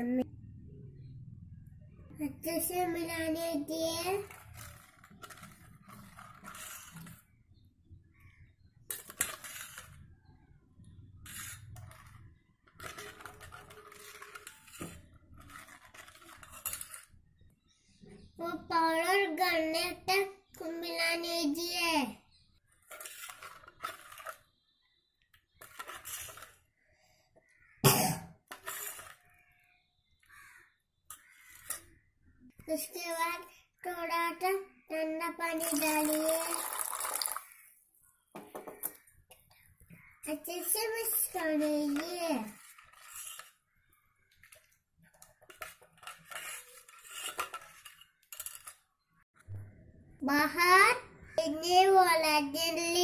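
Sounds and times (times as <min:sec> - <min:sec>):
spoon scraping metal bowl: 0:04.1 - 0:07.6, 0:08.5 - 0:10.1, 0:10.8 - 0:17.7, 0:22.4 - 0:26.8, 0:28.4 - 0:32.1, 0:39.9 - 0:49.1.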